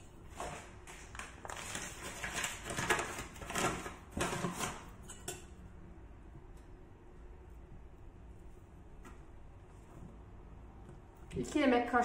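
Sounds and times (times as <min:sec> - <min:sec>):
flour bag rustling: 0:00.2 - 0:04.8.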